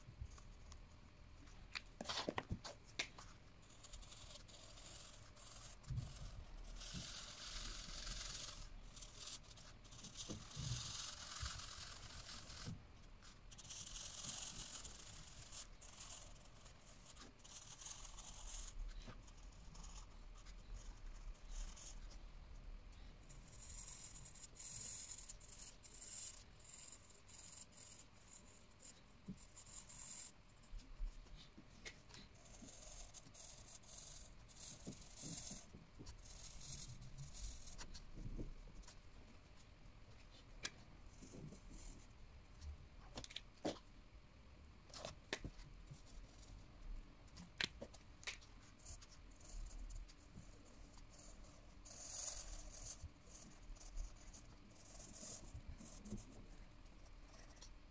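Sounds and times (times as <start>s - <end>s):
felt-tip marker scratching paper: 3.6s - 22.2s, 23.3s - 30.8s, 32.3s - 39.0s, 48.6s - 57.9s.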